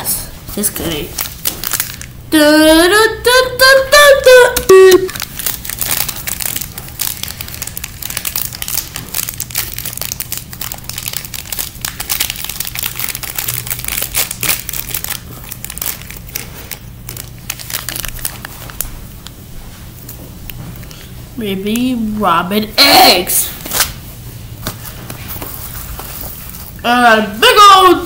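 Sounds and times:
plastic wrapper crinkling: 0:00.5 - 0:02.2, 0:04.6 - 0:19.4, 0:24.6 - 0:26.8.

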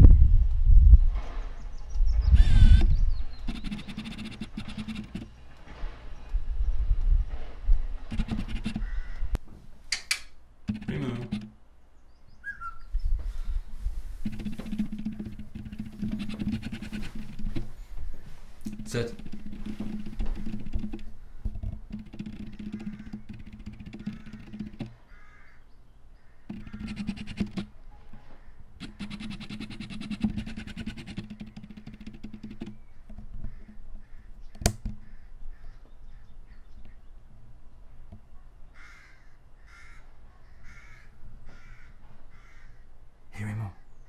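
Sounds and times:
lens autofocus motor buzzing: 0:02.4 - 0:05.4
sharp click: 0:02.4 - 0:05.4, 0:08.1 - 0:08.9, 0:09.9 - 0:11.6, 0:18.6 - 0:25.0, 0:26.5 - 0:27.7, 0:28.8 - 0:33.8, 0:34.5 - 0:35.0.

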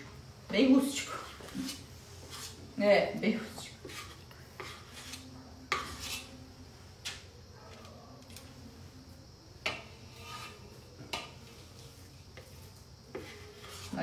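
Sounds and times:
spoon scraping a bowl: 0:01.0 - 0:02.6, 0:03.6 - 0:06.4, 0:09.6 - 0:14.0.

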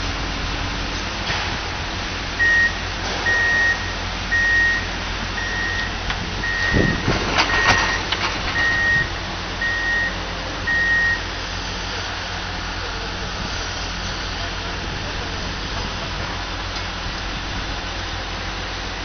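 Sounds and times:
loader engine running: 0:00.0 - 0:19.0
reversing alarm beeping: 0:02.4 - 0:11.7.

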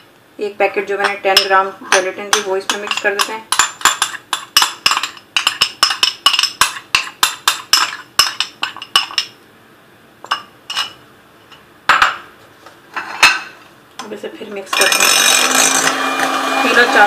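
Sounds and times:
utensil clinking against bowl: 0:01.0 - 0:09.4, 0:10.2 - 0:12.2.

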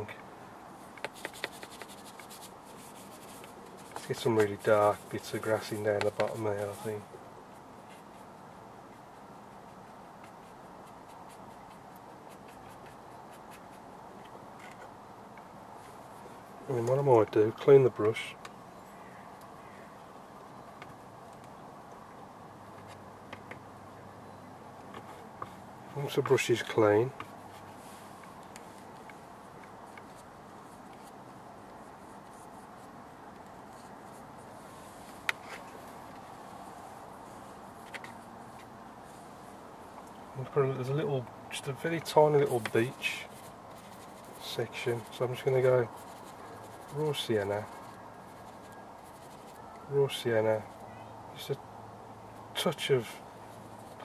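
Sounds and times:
steady low hiss: 0:00.0 - 0:54.0
paintbrush scratching on paper: 0:01.0 - 0:08.3, 0:08.9 - 0:13.9, 0:29.8 - 0:35.8, 0:42.1 - 0:49.7.

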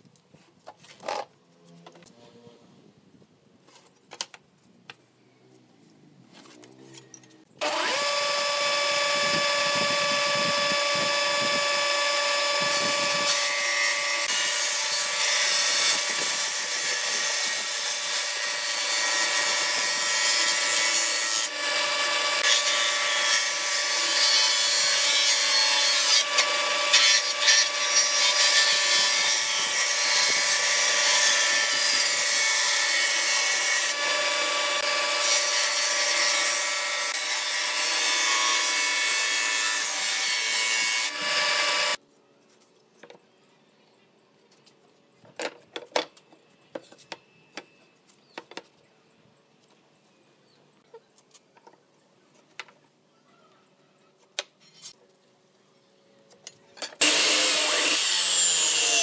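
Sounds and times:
table saw cutting wood: 0:07.6 - 0:42.0, 0:57.0 - 0:59.0.

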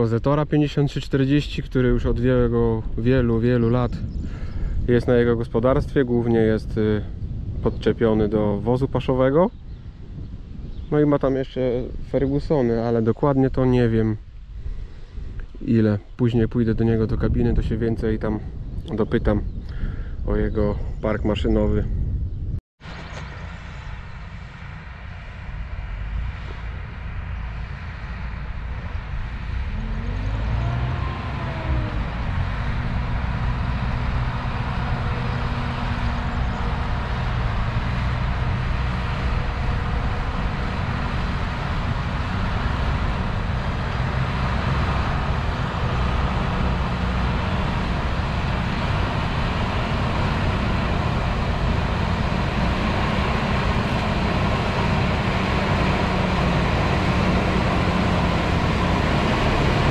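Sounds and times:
tractor engine running: 0:22.8 - 0:59.9.

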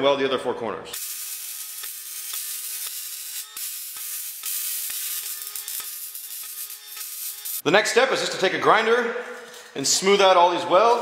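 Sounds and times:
welding arc sharp pops: 0:01.0 - 0:07.6
welding arc crackling hiss: 0:01.0 - 0:07.7.

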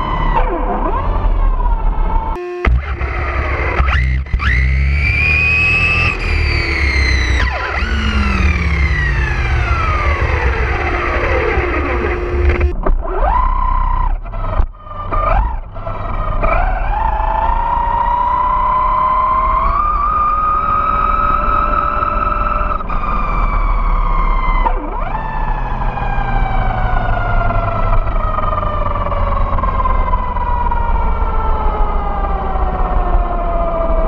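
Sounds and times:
tyres rumbling on asphalt: 0:00.0 - 0:34.0
electric motor whining: 0:00.4 - 0:23.7.

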